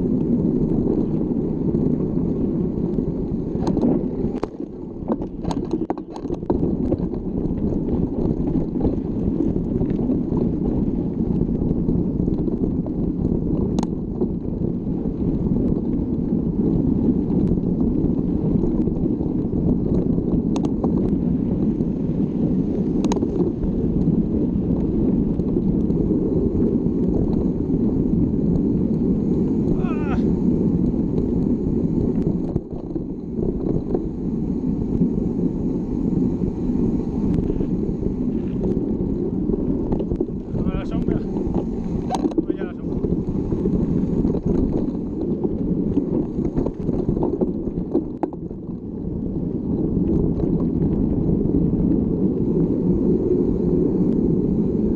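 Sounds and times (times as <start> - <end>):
wind buffeting microphone: 0.0 - 54.9
bike clicks and knocks: 3.6 - 10.4, 18.6 - 21.1, 23.0 - 24.1, 41.4 - 42.6.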